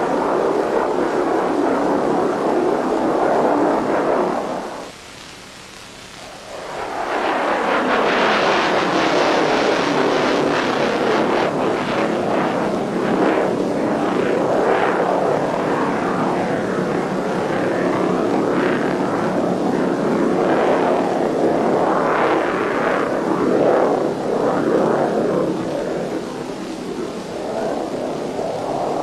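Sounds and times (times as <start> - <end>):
military jet engine roar: 0.0 - 4.8, 6.3 - 29.0
low hiss: 0.0 - 29.0.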